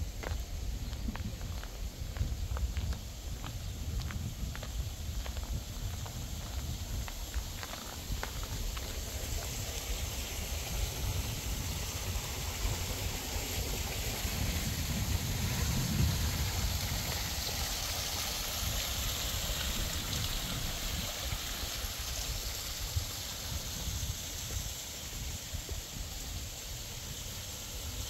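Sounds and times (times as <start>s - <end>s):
fountain water trickling: 0.0s - 28.0s.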